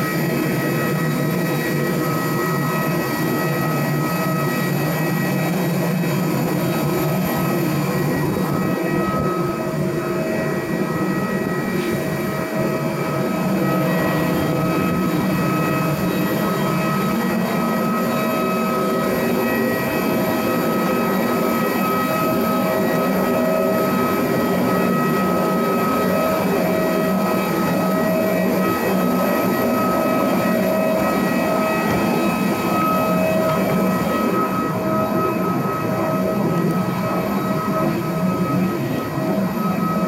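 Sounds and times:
mechanical drone with whining tones: 0.0 - 40.0.

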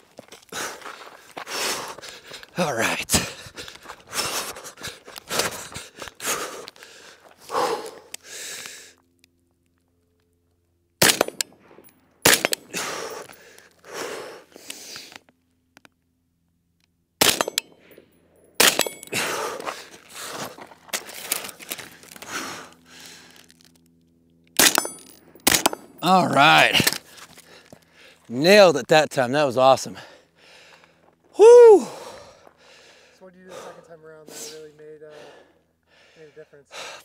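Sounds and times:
running footsteps: 0.0 - 8.2, 19.0 - 23.6
rifle shots: 11.0 - 12.8, 17.2 - 17.8, 18.6 - 19.1, 24.6 - 26.0.

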